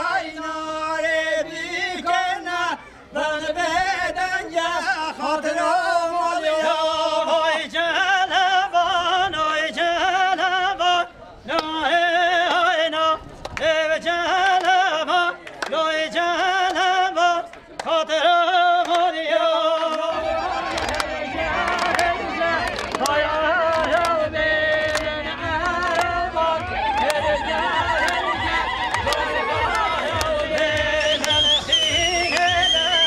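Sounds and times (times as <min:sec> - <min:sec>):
man singing unaccompanied: 0:00.0 - 0:33.0.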